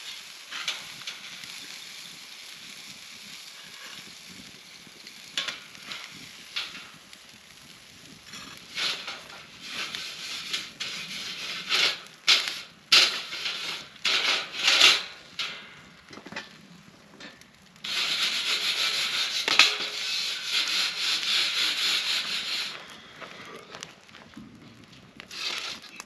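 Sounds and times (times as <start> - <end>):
metal spatula scraping grill grate: 0.0 - 1.7, 5.2 - 7.0, 8.2 - 16.6, 17.2 - 22.9, 25.3 - 26.0.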